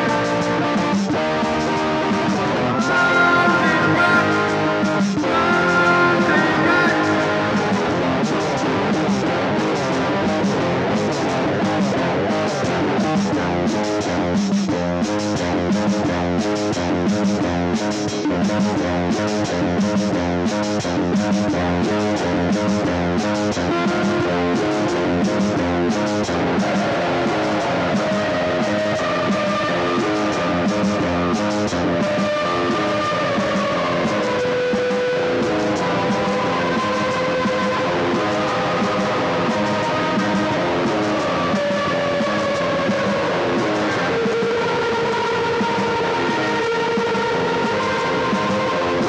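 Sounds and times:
guitar strumming chords: 0:00.0 - 0:14.2
long held high note: 0:02.6 - 0:08.2.

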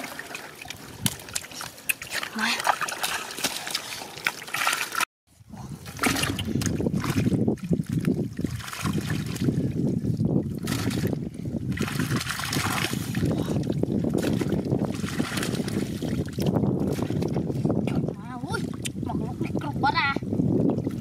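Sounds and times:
shallow water splashing: 0:00.0 - 0:05.1, 0:05.8 - 0:18.9.

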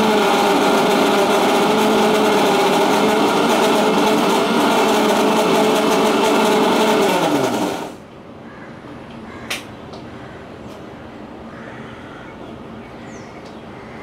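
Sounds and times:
mixer grinder running: 0:00.0 - 0:08.0.

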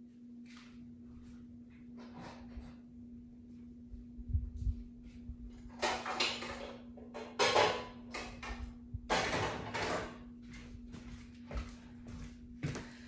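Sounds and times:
pots and pans clattering: 0:05.7 - 0:08.4, 0:09.1 - 0:10.2.

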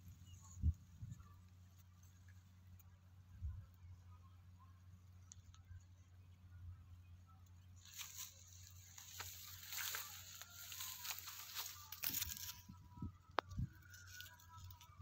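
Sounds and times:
rice plants rustling: 0:07.8 - 0:12.7.

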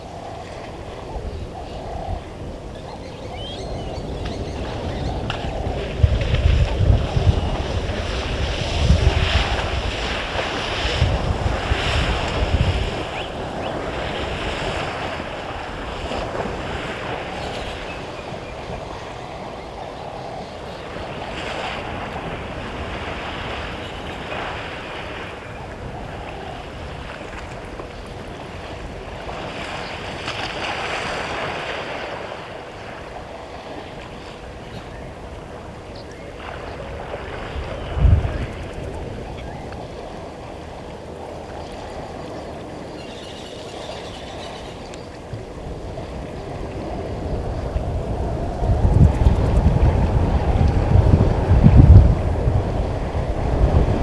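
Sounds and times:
wind buffeting microphone: 0:00.0 - 0:54.0
water splashing and sloshing: 0:04.3 - 0:17.9, 0:20.9 - 0:47.2.

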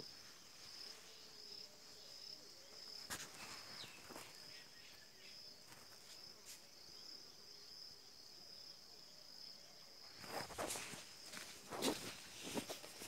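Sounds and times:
crickets trilling: 0:00.0 - 0:13.0
scuffing sounds: 0:03.0 - 0:04.5, 0:10.2 - 0:13.0.

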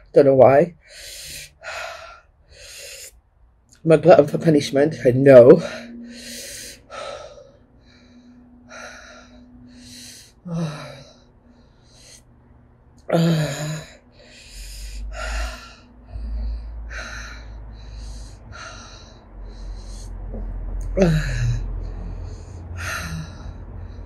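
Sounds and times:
woman breathing hard: 0:00.8 - 0:03.2, 0:05.6 - 0:24.0
woman gasping: 0:08.7 - 0:11.2, 0:13.0 - 0:18.9, 0:20.8 - 0:23.8.

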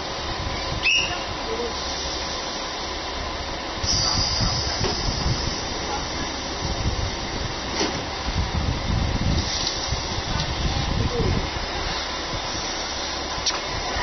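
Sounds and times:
diesel engine rumble: 0:00.0 - 0:14.0
compressed air hiss: 0:01.8 - 0:02.8, 0:03.8 - 0:06.8, 0:09.3 - 0:10.3.

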